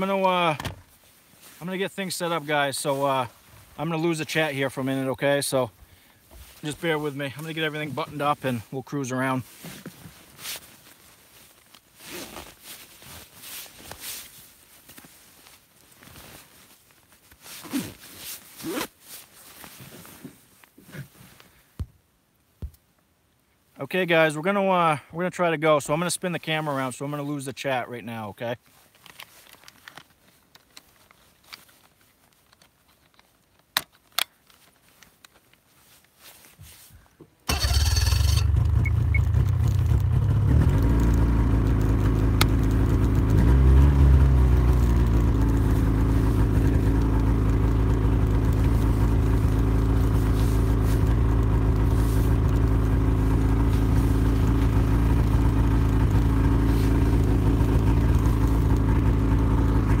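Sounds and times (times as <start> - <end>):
snowmobile engine running: 37.5 - 60.0.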